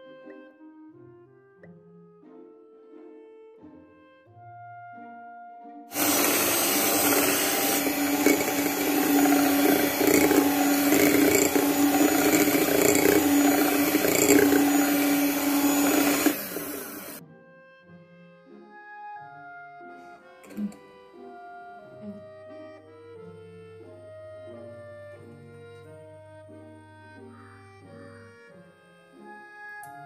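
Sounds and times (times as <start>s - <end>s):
electric hand mixer whisking: 5.9s - 17.2s, 20.4s - 20.8s.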